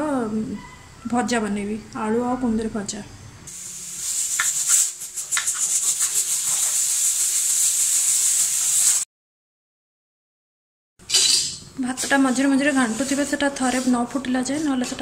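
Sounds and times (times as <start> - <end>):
pressure cooker steam hiss: 3.5 - 9.1.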